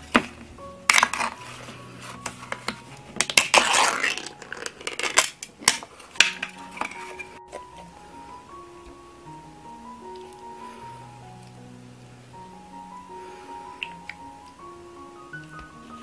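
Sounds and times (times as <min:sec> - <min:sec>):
metal lid tearing: 0:00.9 - 0:01.5, 0:02.2 - 0:07.4.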